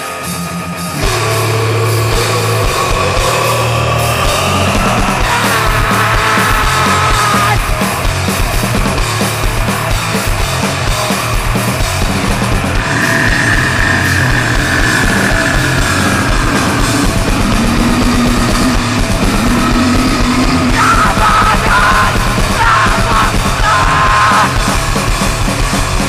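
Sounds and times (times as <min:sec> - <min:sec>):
distorted heavy band music: 0:00.0 - 0:26.0
person yelling vocals: 0:03.7 - 0:07.7, 0:20.6 - 0:24.6.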